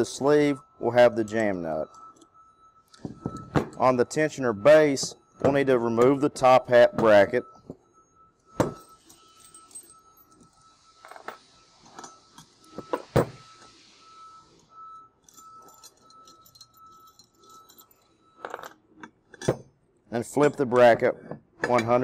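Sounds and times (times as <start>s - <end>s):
metal parts clinking on tool tray: 8.6s - 13.1s, 15.2s - 19.6s.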